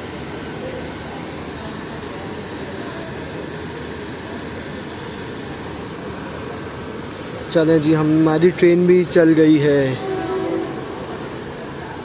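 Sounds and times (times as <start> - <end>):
train rushing noise from aboard: 9.2 - 12.0.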